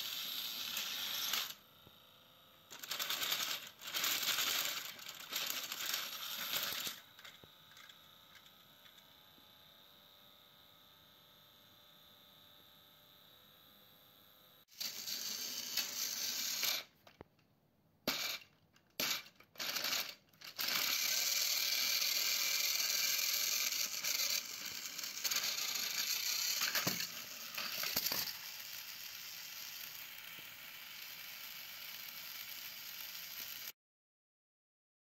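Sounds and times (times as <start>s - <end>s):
small gears rattling: 0.0s - 1.6s, 2.7s - 9.1s, 14.7s - 17.2s, 18.0s - 33.7s
toy train motors whirring: 0.0s - 17.3s, 18.0s - 33.8s.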